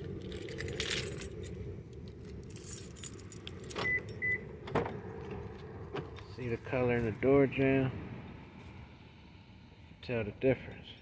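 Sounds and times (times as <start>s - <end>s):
car keys jangling: 0.0s - 4.4s
low hum: 0.0s - 10.0s.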